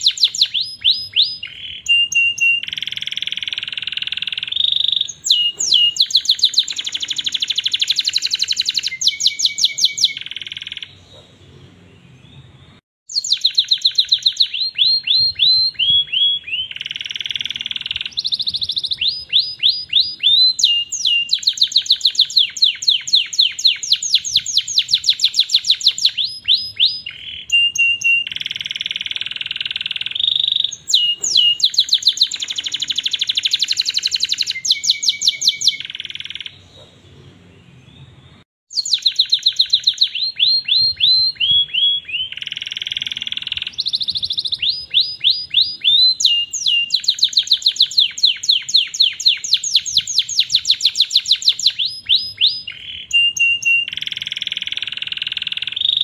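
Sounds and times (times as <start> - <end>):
canary singing trills: 0.0 - 56.0.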